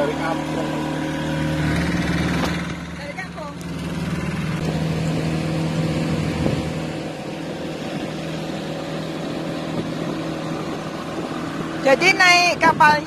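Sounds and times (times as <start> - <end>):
boat motor humming: 0.0 - 13.0
water noise: 0.0 - 13.0
wind noise: 4.5 - 13.0.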